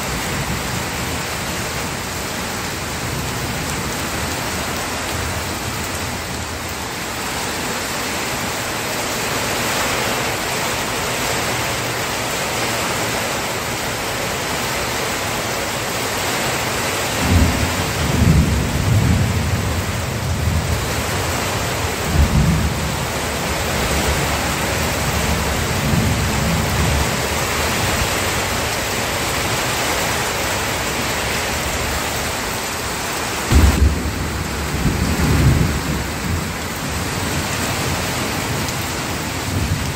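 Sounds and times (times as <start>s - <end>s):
heavy rain: 0.0s - 39.9s
low thunder rumbling: 17.2s - 21.1s, 33.5s - 39.9s.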